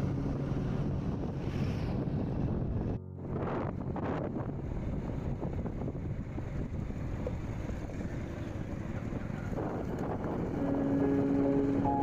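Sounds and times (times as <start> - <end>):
road rumble: 0.0 - 12.0
wind buffeting microphone: 0.0 - 12.0
held music notes: 10.6 - 12.0.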